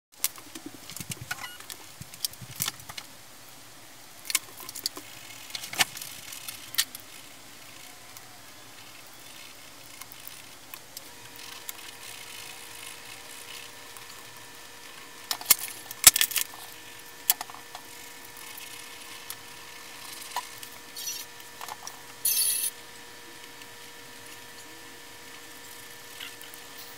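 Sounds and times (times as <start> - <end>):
faint steady hum: 0.2 - 26.9.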